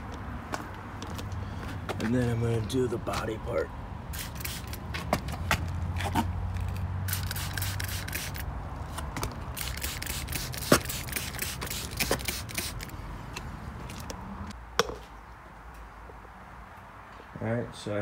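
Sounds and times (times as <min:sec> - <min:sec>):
spray bottle hissing: 0:04.1 - 0:04.8, 0:07.1 - 0:08.4, 0:09.6 - 0:12.9.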